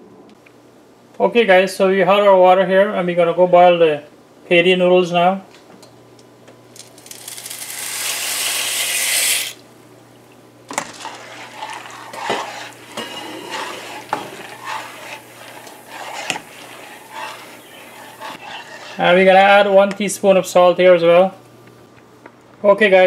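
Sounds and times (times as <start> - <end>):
pasta poured into boiling water: 6.8 - 9.6, 10.7 - 18.4.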